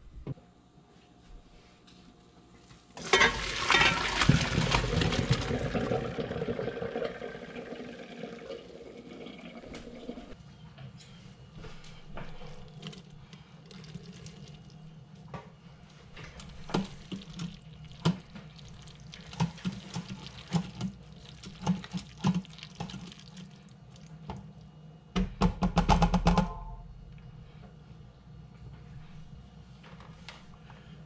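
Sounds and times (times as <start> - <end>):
wet stirring of macaroni: 16.2 - 24.7.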